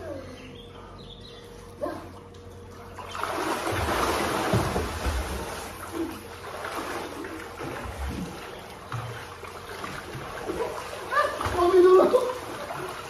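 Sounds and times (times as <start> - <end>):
swimmers splashing in pool water: 2.9 - 13.0.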